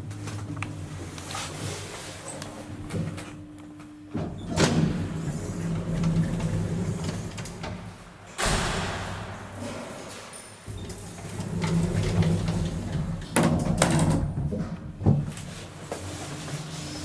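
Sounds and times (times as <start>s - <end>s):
low electrical hum: 0.0s - 16.4s
elevator machinery clunk: 8.3s - 11.0s
sharp knock: 8.4s - 10.1s.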